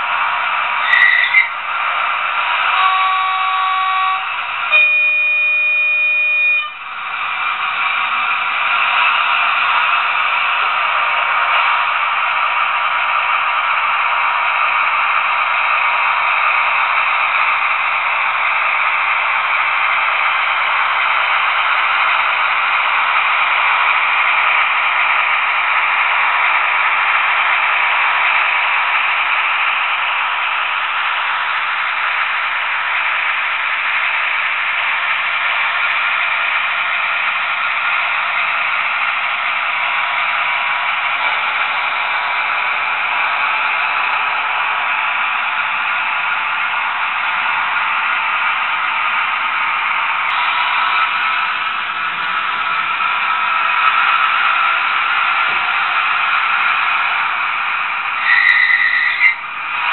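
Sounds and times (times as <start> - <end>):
model locomotive engine sound: 0.0 - 59.9
model wheels rattling on rails: 0.8 - 1.6.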